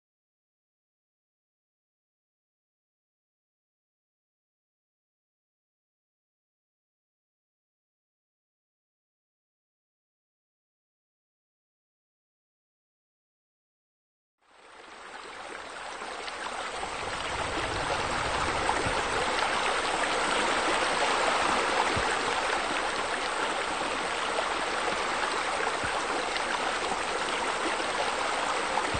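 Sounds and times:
running water splashing: 14.8 - 28.9.

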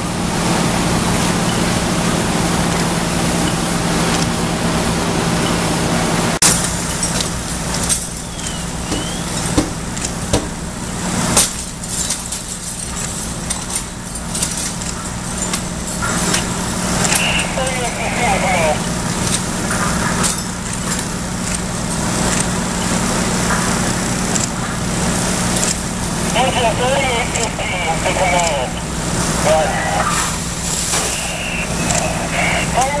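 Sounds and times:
fire engine humming: 0.0 - 33.0
knocks and clatter: 6.4 - 17.5, 18.8 - 26.4
water hissing from hoses: 15.1 - 33.0.

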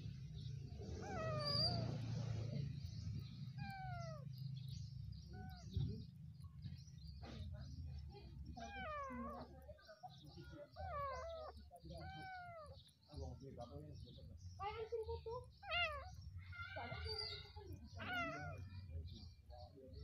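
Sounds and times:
kitten meowing: 0.9 - 2.0, 3.5 - 4.3, 5.3 - 5.8, 8.6 - 9.6, 10.7 - 12.8, 15.6 - 18.7.

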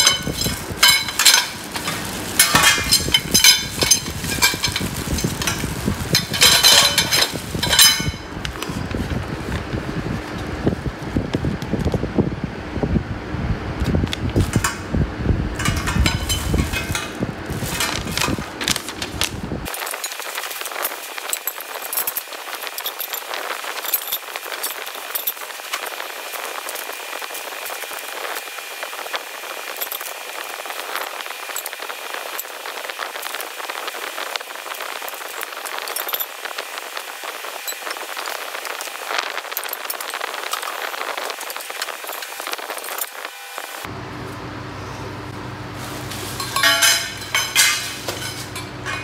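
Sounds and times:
metal tubes clinking and rattling: 0.0 - 8.8, 14.4 - 14.9, 15.6 - 28.0, 29.7 - 36.6, 37.5 - 43.2, 45.8 - 49.0
paper sheet crinkling: 0.0 - 10.6, 16.0 - 28.4
plastic wrapping rustling: 0.0 - 11.2, 15.6 - 28.6, 45.7 - 49.0.

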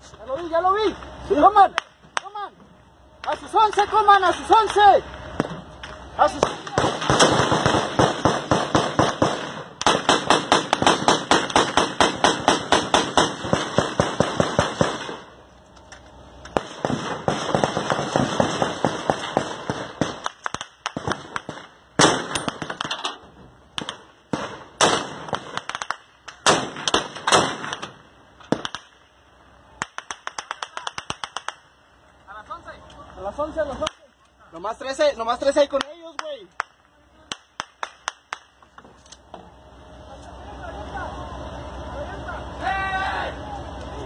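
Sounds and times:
automatic gunfire: 6.4 - 15.2, 16.6 - 23.0, 23.8 - 28.9.

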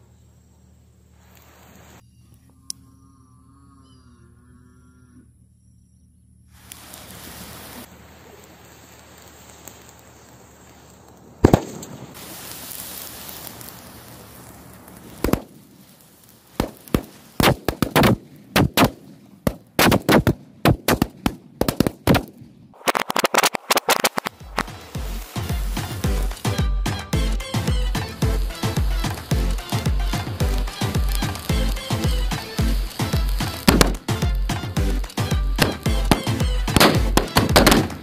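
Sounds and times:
fuse hissing: 6.5 - 11.2, 11.9 - 17.4, 24.2 - 37.2
firecrackers banging: 6.6 - 38.0.

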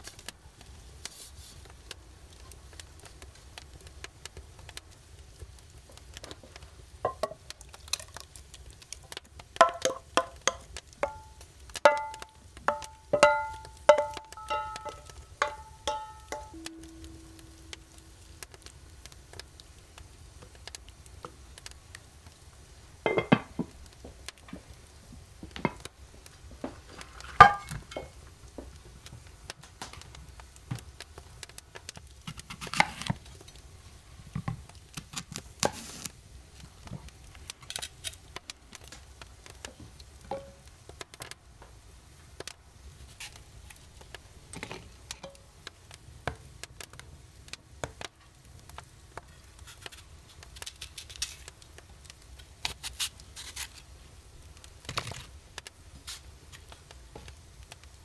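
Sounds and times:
dishes and utensils clinking: 7.1 - 7.4, 9.6 - 18.0, 23.1 - 23.5, 27.4 - 28.2.

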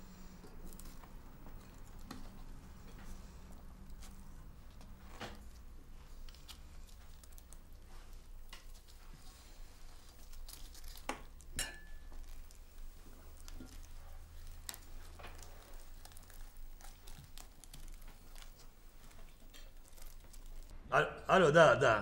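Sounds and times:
forks clinking against plates: 11.6 - 12.1.

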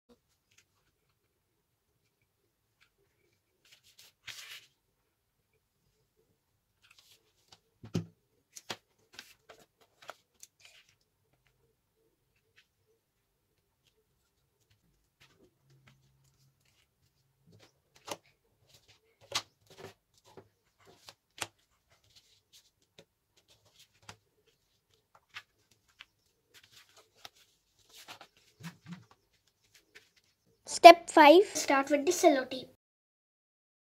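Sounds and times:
paper rustling and crackling: 2.8 - 4.8, 6.8 - 11.5, 13.8 - 30.4.

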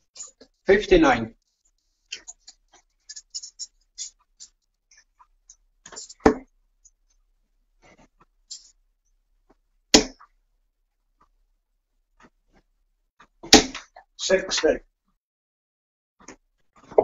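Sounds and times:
darts hitting dartboard: 6.2 - 6.5, 10.0 - 10.2, 13.4 - 13.9.

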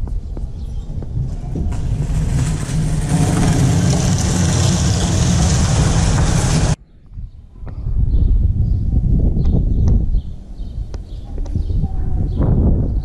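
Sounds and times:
vehicle engine rumble with hiss: 1.4 - 6.8.

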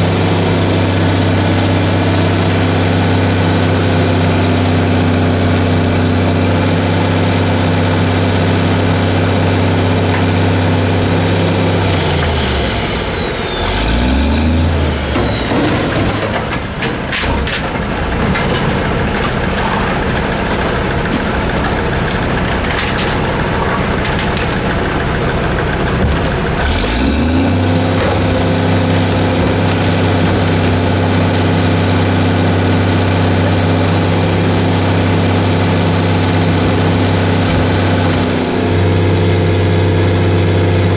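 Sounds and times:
garbage truck engine running: 0.0 - 40.9
cart clanking and knocking: 9.7 - 11.0, 14.9 - 38.4.

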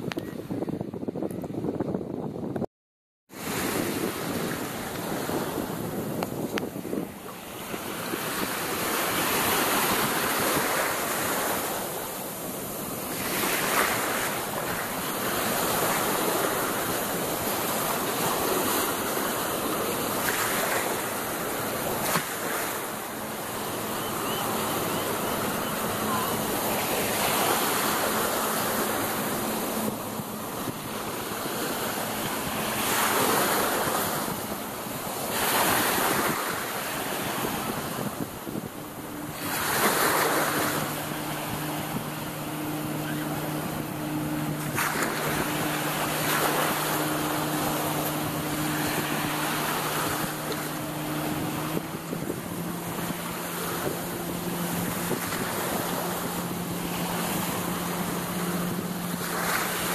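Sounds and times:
wind on microphone: 0.0 - 2.7, 3.3 - 59.9
distant motorboat engine: 3.3 - 59.9
waves washing in shallows: 3.3 - 59.9.

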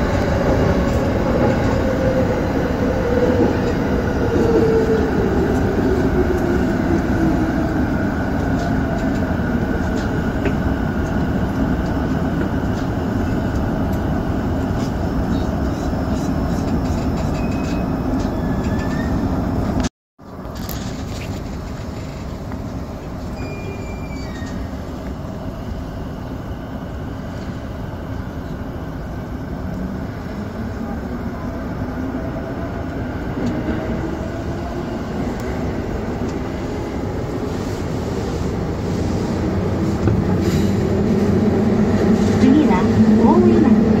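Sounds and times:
wheels on rail: 0.0 - 25.5
train rumbling through tunnel: 0.0 - 44.0.

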